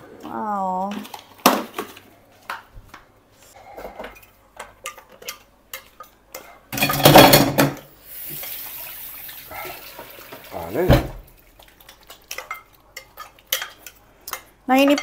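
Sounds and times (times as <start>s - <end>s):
bowl clattering: 6.7s - 7.8s.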